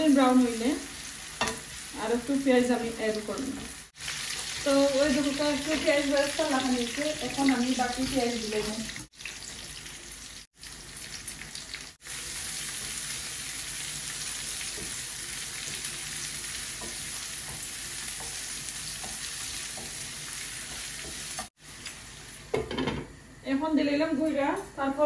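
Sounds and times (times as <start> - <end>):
onions sizzling in hot oil: 0.0 - 23.3
spatula tapping pan: 16.7 - 21.5.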